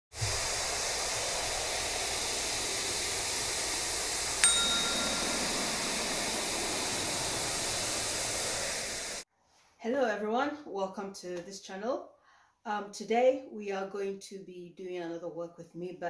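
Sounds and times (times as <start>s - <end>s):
steady rushing hiss: 0.2s - 9.2s
bright chime ringing: 4.4s - 6.7s.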